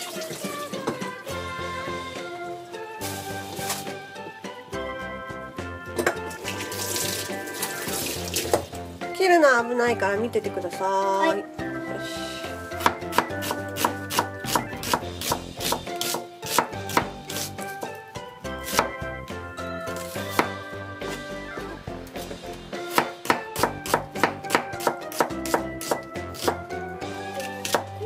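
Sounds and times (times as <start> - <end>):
background music: 0.0 - 28.0
knife slicing onion: 12.7 - 18.0, 18.6 - 19.0, 19.9 - 20.6, 22.2 - 26.7, 27.3 - 28.0.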